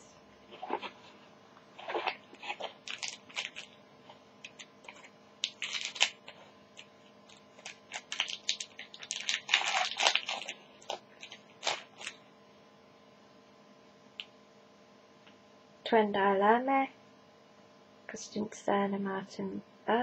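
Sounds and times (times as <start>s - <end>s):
foil wrapper crinkling: 1.8s - 12.2s.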